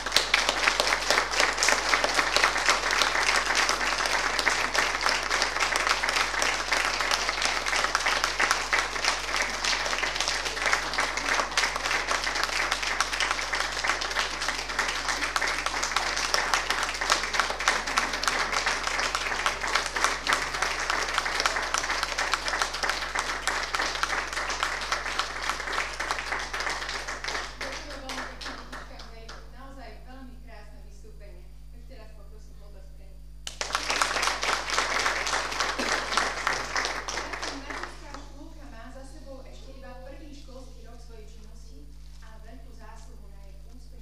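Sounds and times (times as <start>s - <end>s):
audience applauding: 0.0s - 28.9s, 33.4s - 38.2s.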